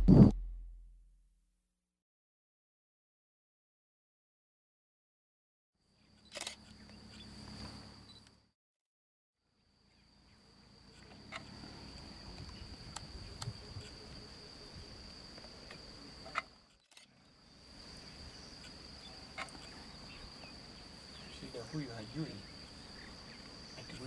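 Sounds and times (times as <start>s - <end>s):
crickets chirring: 5.8s - 8.5s, 9.5s - 24.0s.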